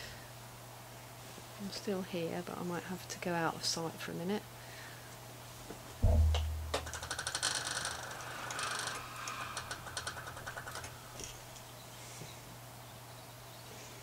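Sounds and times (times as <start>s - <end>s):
iron clicks and rattles: 6.0s - 11.7s
iron steam hiss: 7.4s - 12.2s.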